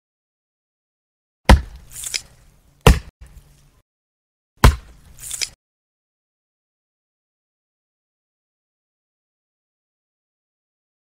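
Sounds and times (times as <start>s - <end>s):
heavy whacks: 2.8s - 3.1s.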